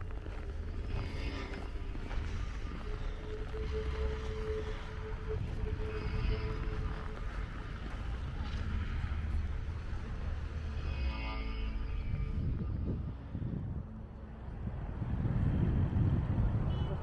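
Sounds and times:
rumble of passing cars: 0:00.0 - 0:17.0
wind buffeting microphone: 0:12.1 - 0:17.0.

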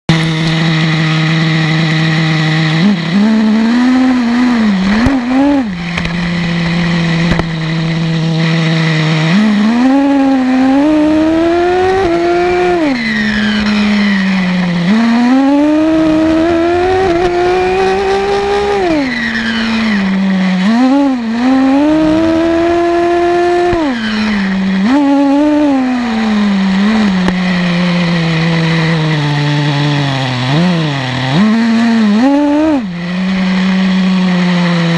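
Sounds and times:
small model engine idling and revving: 0:00.1 - 0:34.9.

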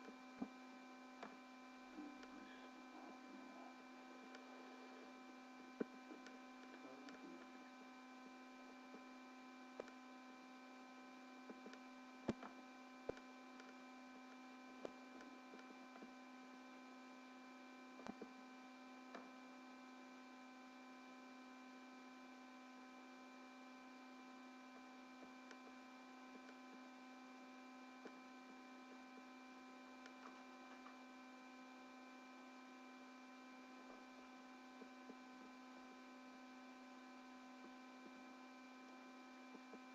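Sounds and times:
electrical hum with tones: 0:00.0 - 0:39.9
small clicks: 0:09.8 - 0:10.0, 0:11.6 - 0:16.1, 0:30.0 - 0:31.0.

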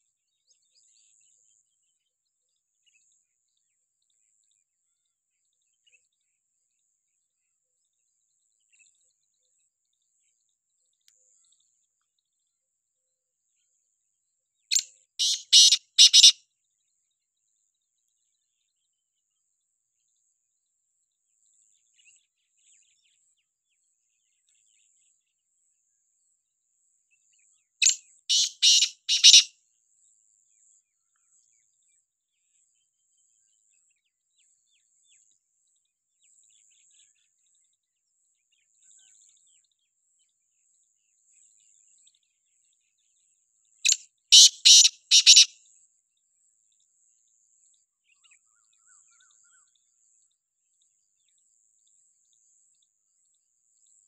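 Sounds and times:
francolin calling: 0:14.7 - 0:16.4, 0:27.8 - 0:29.5, 0:44.3 - 0:45.5.

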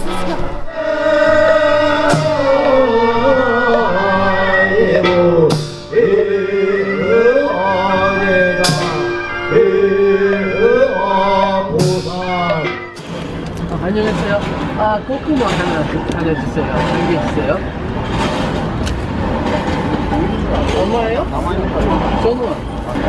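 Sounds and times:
monks chanting: 0:00.7 - 0:13.2
cymbals crashing: 0:00.7 - 0:13.4.

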